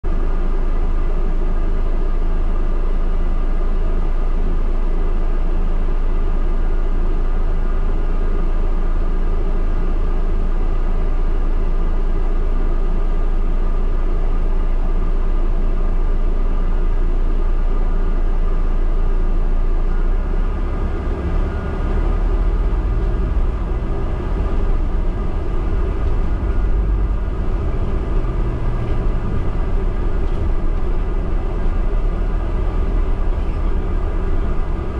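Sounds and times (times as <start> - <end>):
bus engine hum: 0.0 - 34.9.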